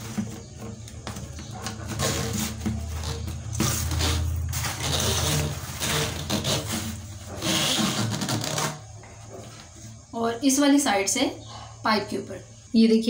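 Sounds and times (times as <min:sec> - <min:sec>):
hose and clamp rubbing and scraping: 0:00.0 - 0:09.9.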